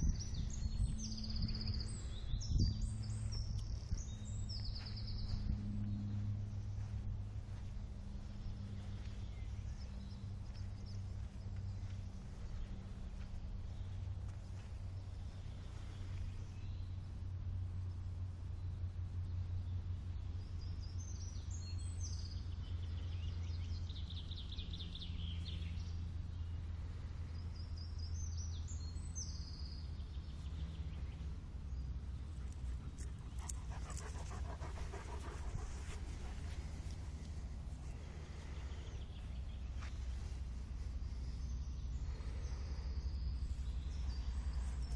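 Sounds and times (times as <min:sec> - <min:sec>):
steady low rumble: 0:00.0 - 0:44.9
dog panting: 0:32.4 - 0:37.0.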